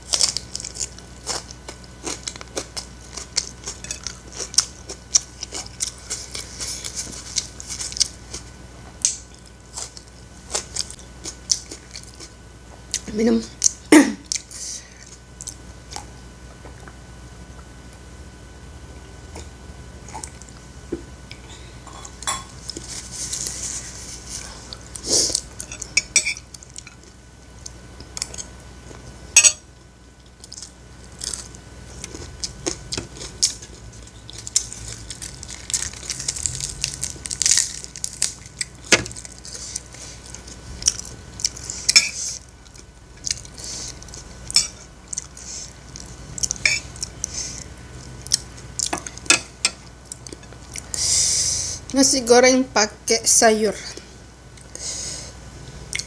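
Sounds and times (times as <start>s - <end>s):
chewing: 0.1s - 14.5s, 30.2s - 51.0s
cabbage leaves tearing: 30.5s - 42.4s.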